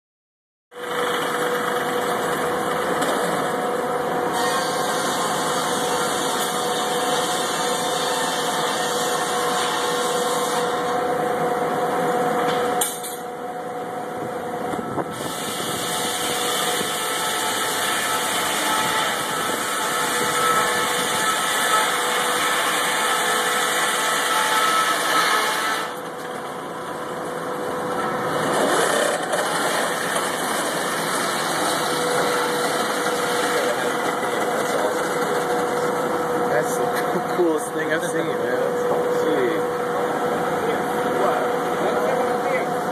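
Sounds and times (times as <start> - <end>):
circular saw humming: 14.1 - 26.8, 27.4 - 42.9.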